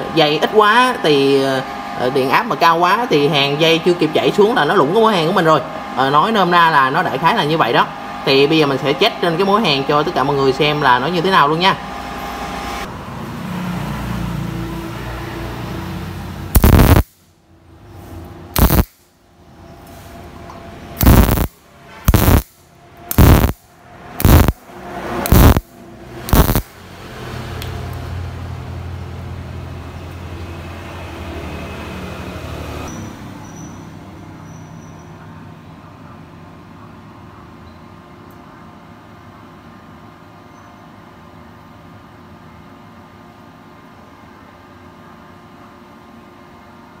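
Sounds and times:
welding arc crackling: 0:16.5 - 0:17.3, 0:18.6 - 0:19.1, 0:21.0 - 0:24.6, 0:25.2 - 0:26.8
low steady hum: 0:16.6 - 0:17.1, 0:21.0 - 0:24.6.

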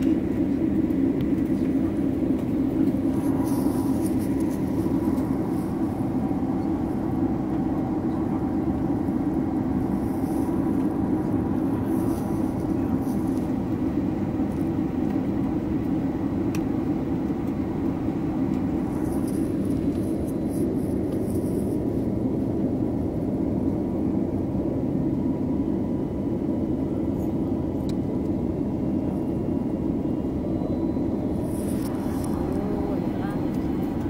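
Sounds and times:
airplane cabin drone: 0:00.0 - 0:34.0
faint steady engine tones: 0:00.0 - 0:34.0.

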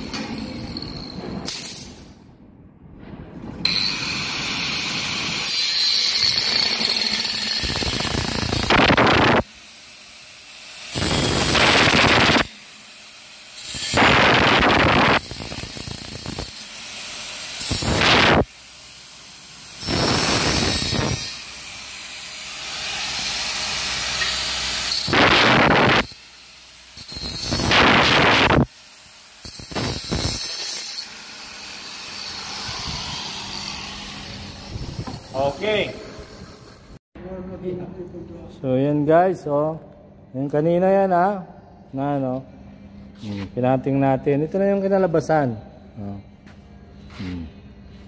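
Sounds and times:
angle grinder cutting metal: 0:03.7 - 0:37.0.

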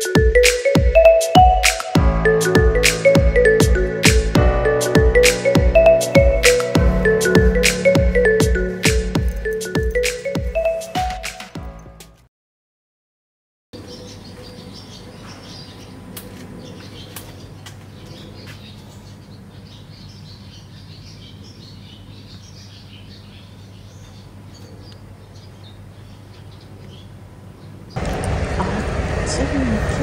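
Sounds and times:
small birds chirping: 0:13.8 - 0:28.0.

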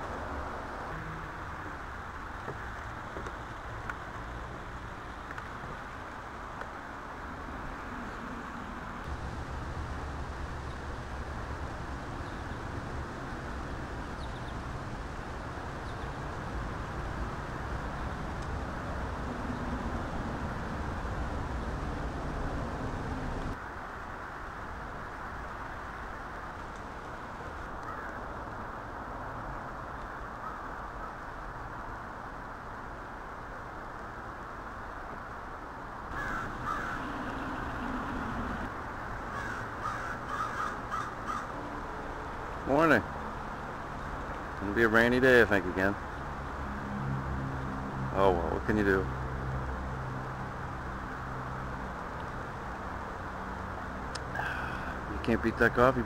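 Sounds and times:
low rumble and hiss: 0:00.0 - 0:56.0
crows cawing: 0:27.8 - 0:28.2, 0:36.1 - 0:38.7, 0:39.3 - 0:41.6, 0:54.4 - 0:55.0.

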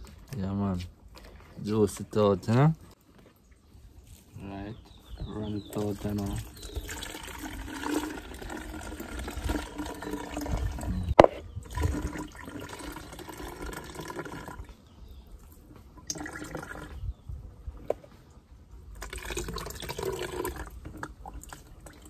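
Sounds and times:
liquid trickling through a sieve: 0:05.7 - 0:14.8, 0:15.4 - 0:17.1, 0:18.9 - 0:22.0.

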